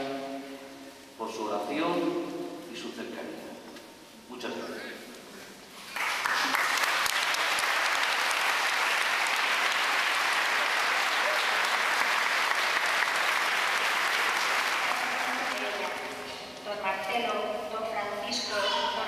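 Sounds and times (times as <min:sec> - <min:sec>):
crowd applauding in a church: 0:05.8 - 0:16.3.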